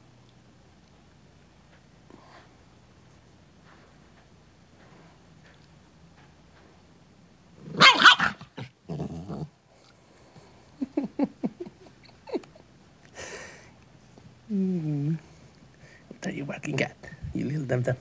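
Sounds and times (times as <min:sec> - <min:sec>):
dog growling: 0:07.6 - 0:09.6
small dog barking: 0:07.7 - 0:08.7.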